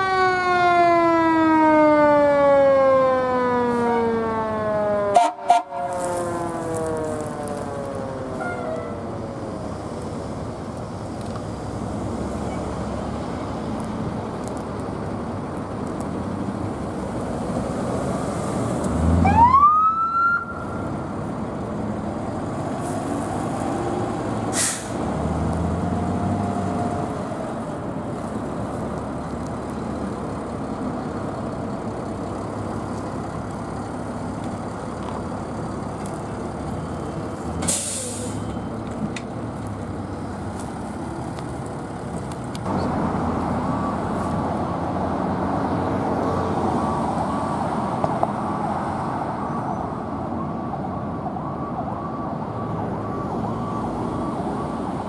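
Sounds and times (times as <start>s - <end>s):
engine and traffic rumble: 0.0s - 55.0s
air brake hiss: 24.5s - 25.0s, 37.6s - 38.5s.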